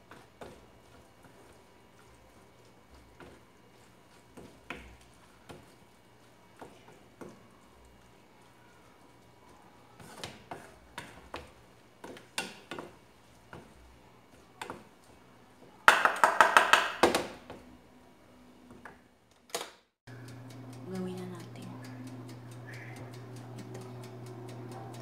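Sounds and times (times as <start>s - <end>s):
wooden spatula knocking on frying pan: 15.9s - 17.3s.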